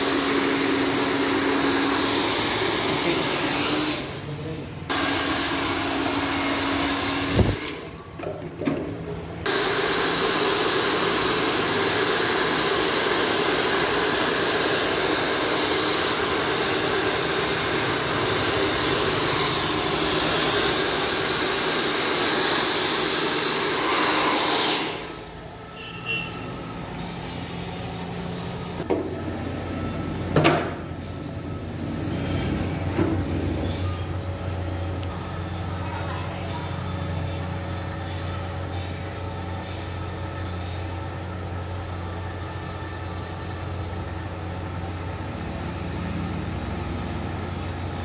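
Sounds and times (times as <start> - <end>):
hair dryer blowing: 0.0 - 4.2, 4.9 - 7.9, 9.5 - 25.3.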